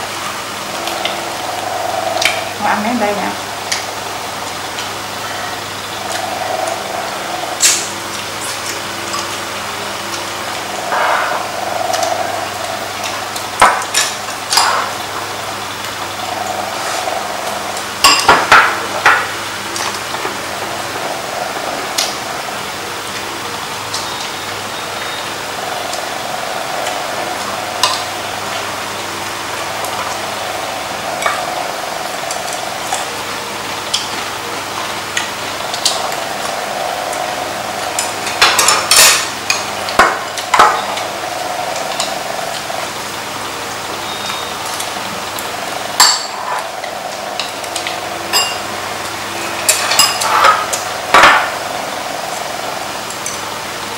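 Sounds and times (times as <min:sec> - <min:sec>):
steady background hum: 0:00.0 - 0:53.9
chopsticks and spoons clinking bowls: 0:48.3 - 0:48.6, 0:49.7 - 0:51.3.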